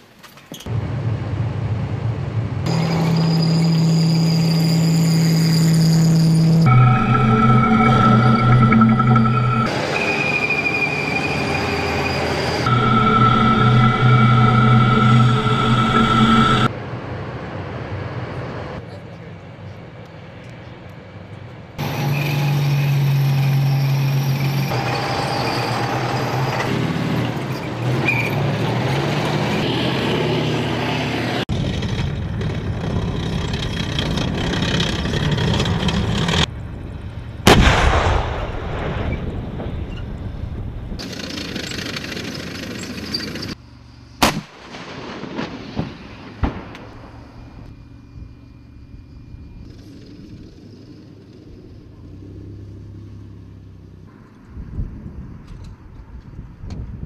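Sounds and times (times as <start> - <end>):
machinery engines rumbling: 0.6 - 45.2
sharp gunshots: 37.5 - 39.4, 44.2 - 47.4
loud gun blast with echo: 37.5 - 39.8.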